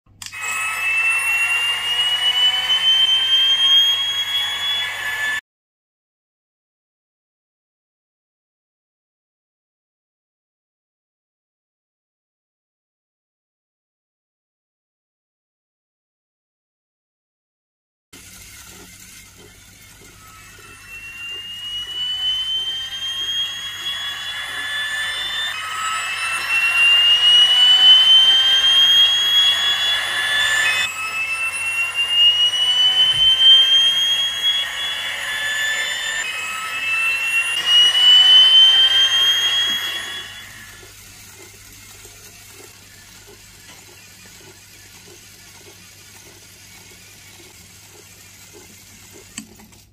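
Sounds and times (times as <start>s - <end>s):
model fan engine whine: 0.1s - 5.4s, 18.2s - 49.9s.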